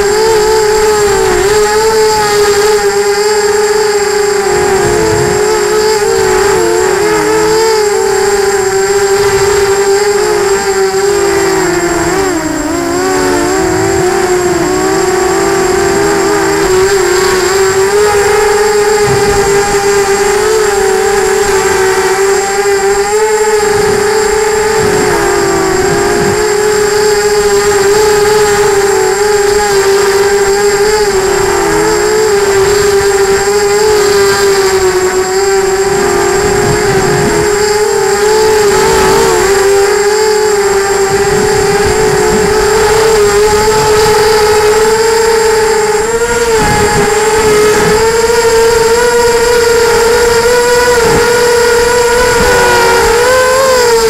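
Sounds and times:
rough rushing air: 0.0s - 22.4s, 35.0s - 54.0s
electric motors whining: 0.0s - 54.0s.

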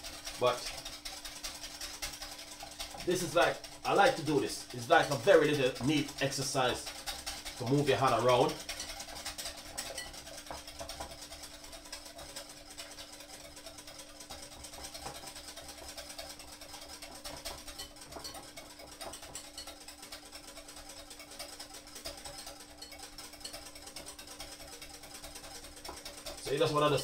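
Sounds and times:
whisk beating cream in bowl: 0.0s - 27.0s.

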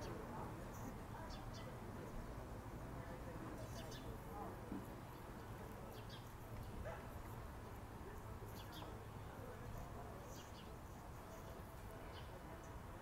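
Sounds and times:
small birds chirping: 5.0s - 6.8s, 8.4s - 9.0s, 10.2s - 12.9s.

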